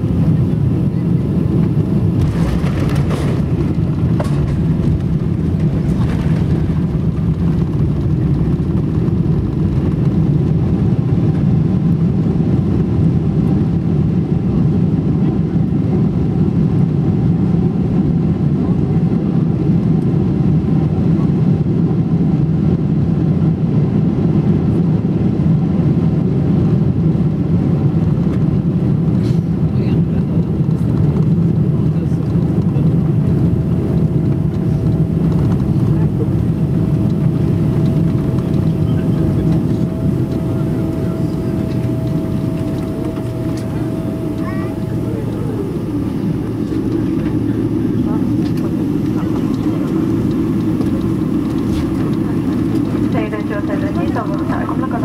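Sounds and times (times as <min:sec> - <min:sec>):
airplane cabin rumble landing: 0:00.0 - 0:55.0
wheels rolling on runway: 0:02.2 - 0:10.2.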